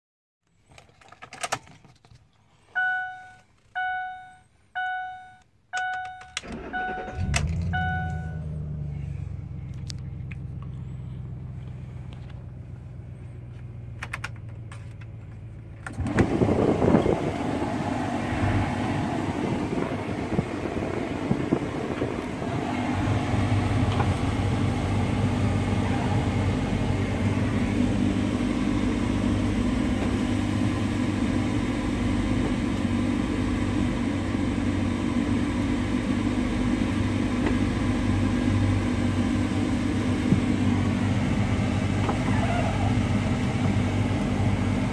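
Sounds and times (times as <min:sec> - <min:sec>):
dashboard warning chime: 0:02.8 - 0:08.6
engine cranking and idling: 0:05.8 - 0:44.9.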